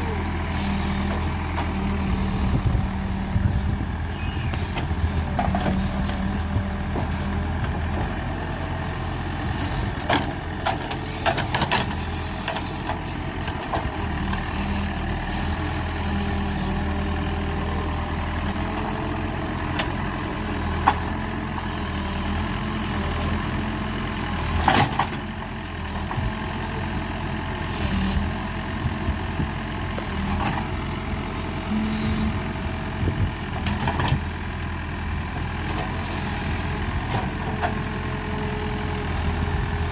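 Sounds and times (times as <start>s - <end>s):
diesel engine running: 0.0s - 39.9s.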